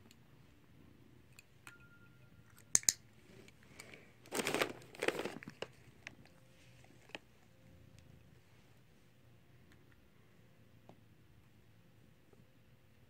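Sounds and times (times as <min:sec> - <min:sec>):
cat crunching a treat: 0:03.7 - 0:07.3.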